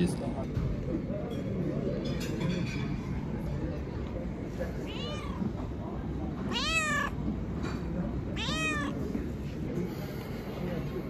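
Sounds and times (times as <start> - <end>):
low background hum: 0.0 - 11.0
cat meowing: 4.8 - 5.5, 6.5 - 7.2, 8.4 - 9.0.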